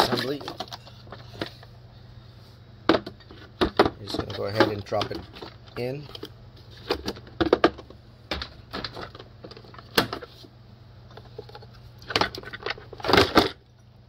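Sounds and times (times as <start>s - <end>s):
low steady hum: 0.0s - 14.0s
knocks and clunks of car parts: 2.9s - 5.3s, 6.9s - 10.3s.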